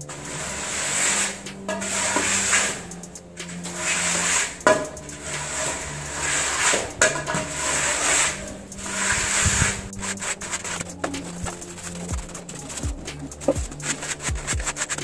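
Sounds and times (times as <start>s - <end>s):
straightedge scraping wet mortar: 0.2s - 2.8s, 3.4s - 15.0s.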